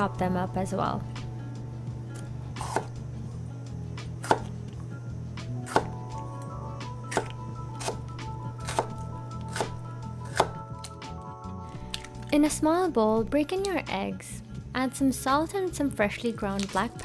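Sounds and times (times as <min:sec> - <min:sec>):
background music: 0:00.0 - 0:17.0
knife chopping on wooden board: 0:02.6 - 0:03.0, 0:04.2 - 0:04.6, 0:05.6 - 0:06.0, 0:07.1 - 0:10.6.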